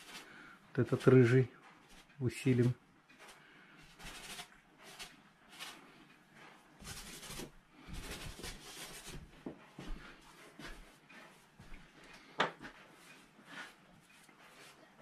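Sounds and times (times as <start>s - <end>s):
brush rubbing paint on canvas: 3.3s - 11.7s.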